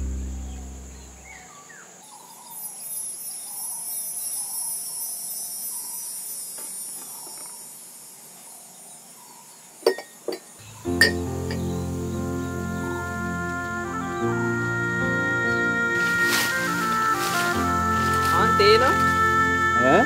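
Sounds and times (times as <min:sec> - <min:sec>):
bird chirps: 0:00.0 - 0:14.3
insects chirring: 0:00.0 - 0:20.0.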